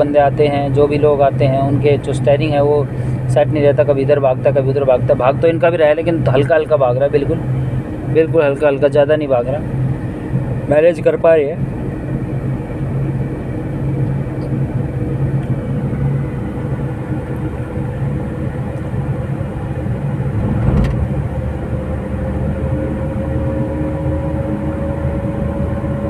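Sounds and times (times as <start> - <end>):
car engine and road noise: 0.0 - 26.0
brief thump: 20.4 - 21.1.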